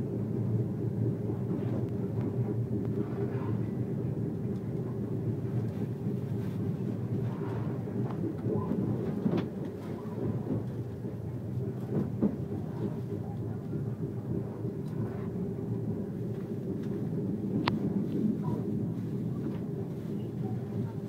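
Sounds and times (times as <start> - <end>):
train rumble: 0.0 - 21.0.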